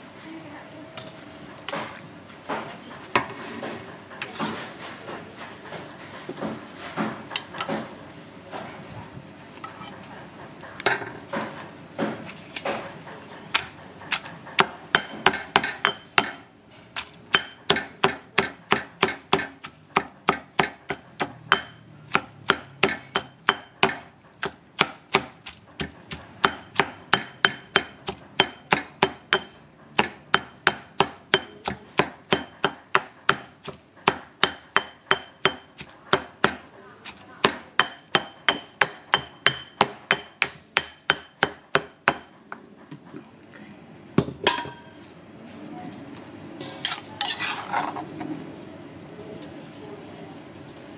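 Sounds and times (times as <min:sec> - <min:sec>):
cleaver chopping on wooden block: 0:17.0 - 0:42.3.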